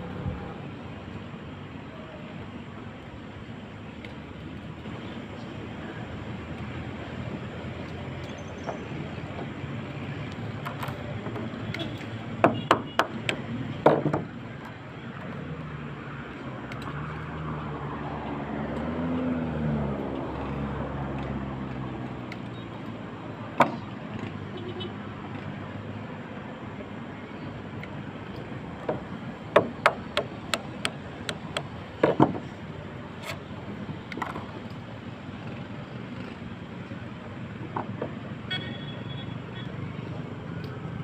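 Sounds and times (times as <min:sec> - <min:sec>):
steady outdoor hum: 0:00.0 - 0:41.0
sharp knocks of hand work: 0:12.4 - 0:14.3, 0:28.8 - 0:32.4.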